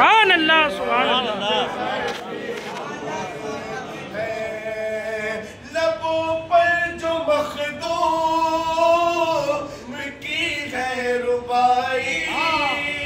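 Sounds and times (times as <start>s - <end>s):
man singing unaccompanied: 3.1s - 13.0s.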